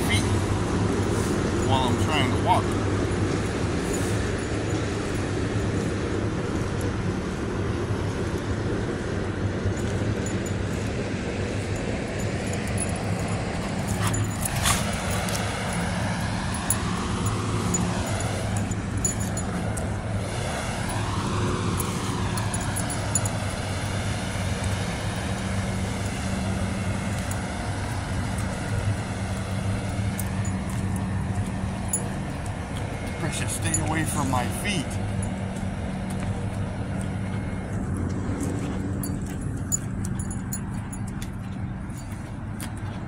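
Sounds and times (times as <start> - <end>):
low engine hum: 0.0 - 43.0
traffic noise: 0.0 - 43.0.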